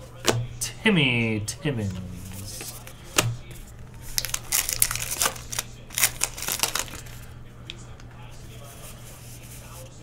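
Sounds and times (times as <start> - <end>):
foil wrapper crinkling and tearing: 4.0 - 7.3.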